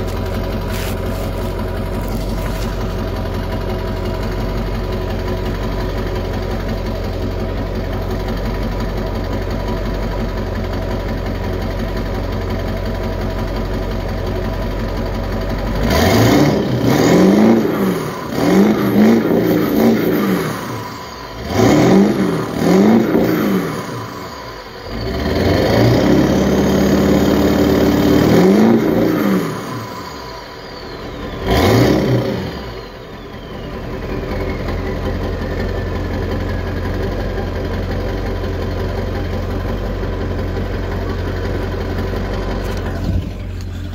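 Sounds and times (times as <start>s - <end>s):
diesel engine idling and revving: 0.0s - 43.9s
turbo whistle: 28.3s - 36.8s.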